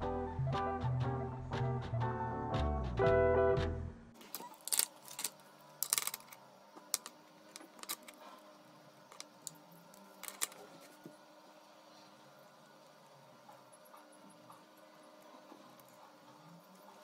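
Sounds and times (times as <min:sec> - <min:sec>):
faint steady hum: 0:03.9 - 0:17.0
pens clicking on desk: 0:04.3 - 0:08.2, 0:10.2 - 0:10.6
papers handled: 0:10.2 - 0:10.9.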